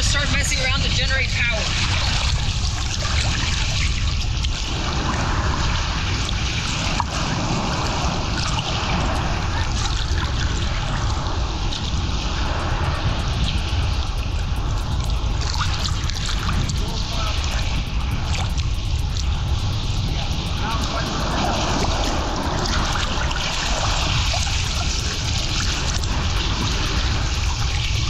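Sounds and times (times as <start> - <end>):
wind rumble on microphone: 0.0 - 28.0
water sloshing and lapping: 1.4 - 13.5.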